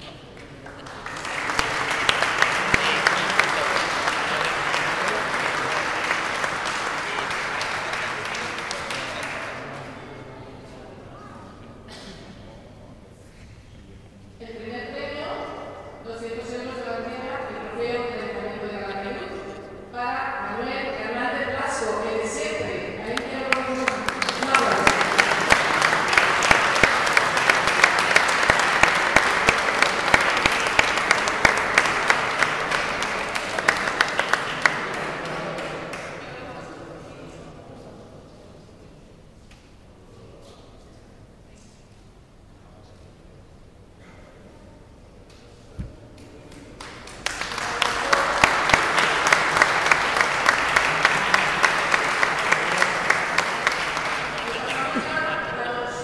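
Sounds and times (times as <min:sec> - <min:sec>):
audience applauding: 0:00.0 - 0:10.2, 0:23.1 - 0:36.5, 0:46.1 - 0:56.0
sharp claps close by: 0:23.2 - 0:36.2.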